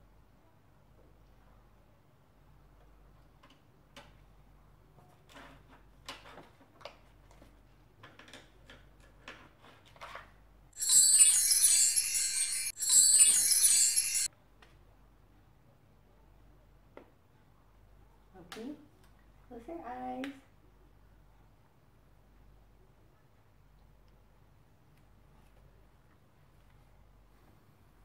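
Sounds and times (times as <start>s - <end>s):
high shimmering chime: 10.8s - 14.3s.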